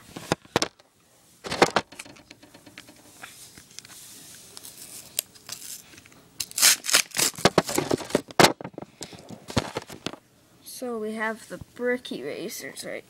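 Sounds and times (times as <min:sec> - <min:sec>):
rustling and scraping: 0:00.0 - 0:10.2.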